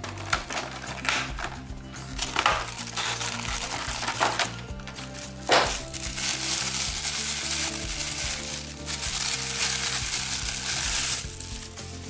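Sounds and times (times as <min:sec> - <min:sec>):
plastic bag crinkling: 0:00.0 - 0:11.8
soft background music: 0:00.0 - 0:12.0.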